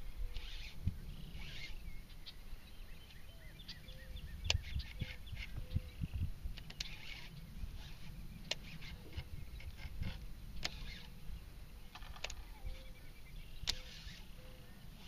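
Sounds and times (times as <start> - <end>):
wind rumble on microphone: 0.0 - 15.0
sharp clicks: 6.5 - 11.1, 11.9 - 12.5, 13.6 - 14.2.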